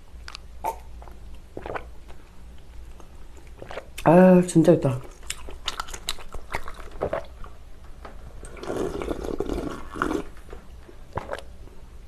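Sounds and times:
person slurping broth: 0:08.5 - 0:10.3.

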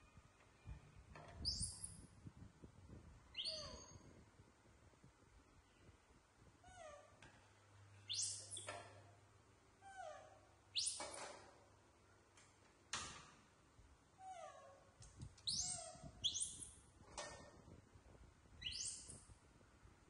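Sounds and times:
baby monkeys squeaking: 0:03.4 - 0:04.0, 0:08.1 - 0:08.7, 0:10.8 - 0:11.2, 0:15.4 - 0:16.7, 0:18.6 - 0:19.2.

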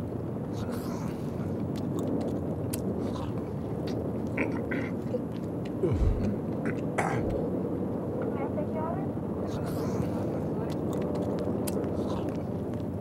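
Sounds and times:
low rumble of traffic: 0:00.0 - 0:13.0
chewing and crunching clicks: 0:00.5 - 0:07.4, 0:09.5 - 0:13.0.

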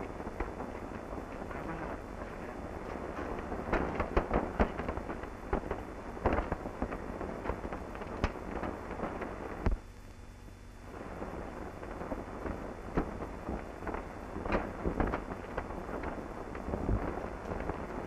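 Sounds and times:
steady hiss: 0:00.0 - 0:18.0
sharp knocks and pops: 0:03.3 - 0:09.8.

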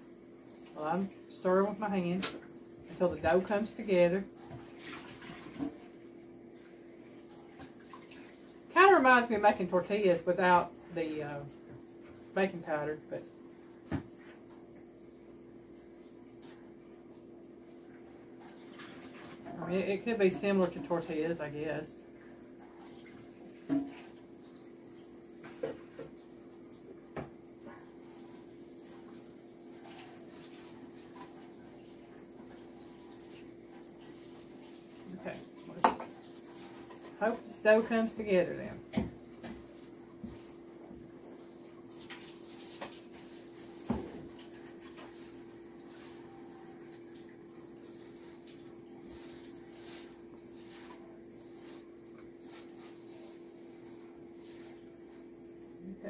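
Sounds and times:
water running from tap: 0:00.0 - 0:56.0.

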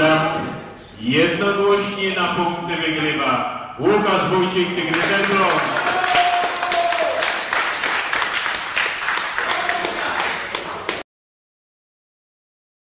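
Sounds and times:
crowd clapping: 0:04.9 - 0:11.0.

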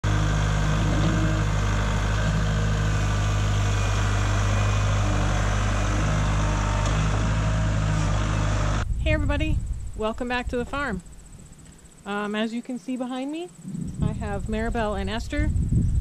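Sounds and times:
tractor diesel engine running: 0:00.0 - 0:09.0.

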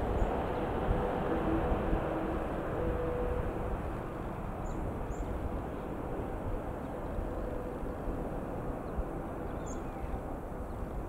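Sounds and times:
distant jet engine rumble: 0:00.0 - 0:11.0
bird chirping: 0:09.5 - 0:10.2.

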